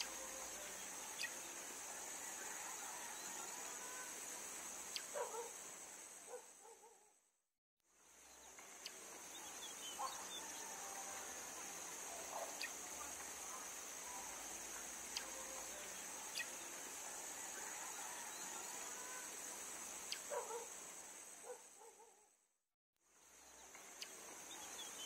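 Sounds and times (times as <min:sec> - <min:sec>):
high-pitched insect drone: 0:00.0 - 0:05.4, 0:08.6 - 0:20.6.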